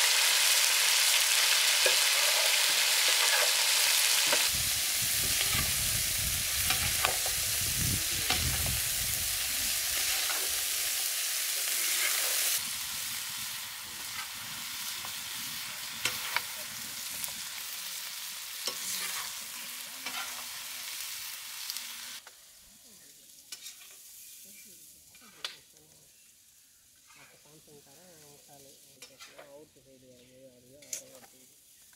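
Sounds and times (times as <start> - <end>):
chicken sizzling in oil: 0.0 - 25.0
spatula scraping pan: 11.7 - 12.5, 18.6 - 20.5, 23.5 - 24.4.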